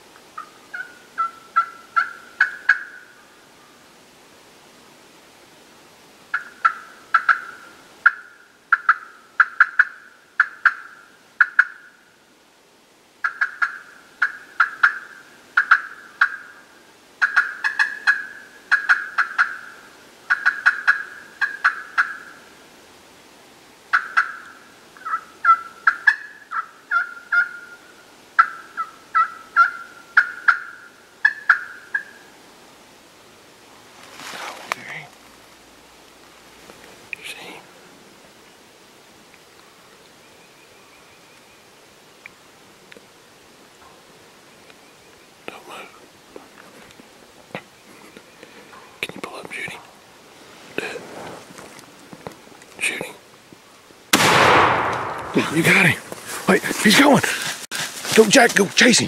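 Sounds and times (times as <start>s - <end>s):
turkey call notes: 0.4s - 3.2s, 6.3s - 12.0s, 13.2s - 22.5s, 23.9s - 32.3s.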